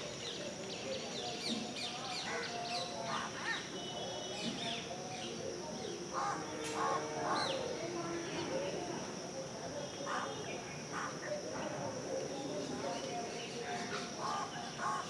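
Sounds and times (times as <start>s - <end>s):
high-pitched insect drone: 2.2s - 11.5s.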